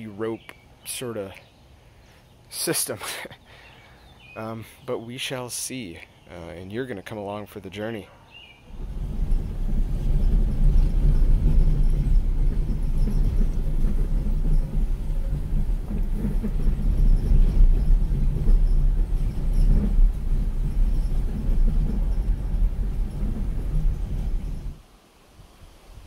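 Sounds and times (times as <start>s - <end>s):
vehicle engine rumbling: 8.6s - 24.8s.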